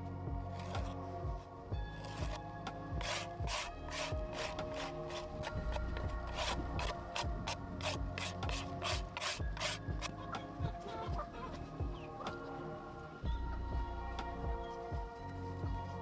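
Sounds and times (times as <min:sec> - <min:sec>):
soft background music: 0:00.0 - 0:16.0
hand scraping clay board: 0:00.5 - 0:01.1, 0:02.0 - 0:10.8.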